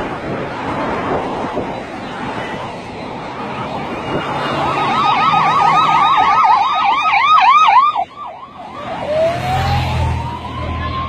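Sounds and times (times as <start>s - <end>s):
siren rising wail: 3.0s - 11.0s
police siren yelp: 3.4s - 11.0s
motorcycle engine passing: 8.9s - 10.4s.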